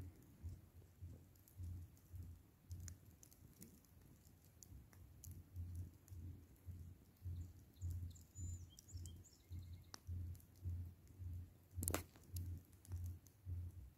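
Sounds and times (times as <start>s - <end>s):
campfire popping: 0.0s - 13.9s
faint bird chirps: 7.2s - 10.2s.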